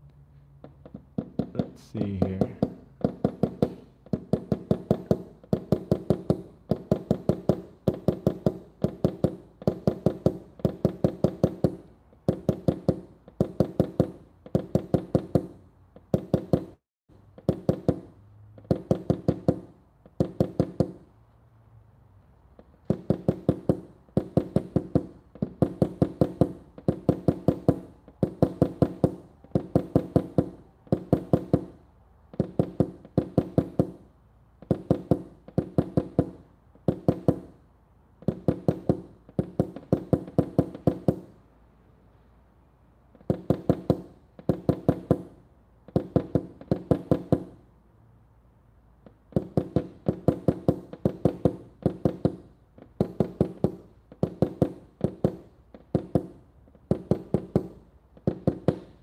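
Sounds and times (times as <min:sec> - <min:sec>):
hammer tapping metal panel: 0:00.7 - 0:16.8, 0:22.8 - 0:34.0, 0:34.6 - 0:37.6, 0:43.2 - 0:45.3, 0:49.3 - 0:59.0.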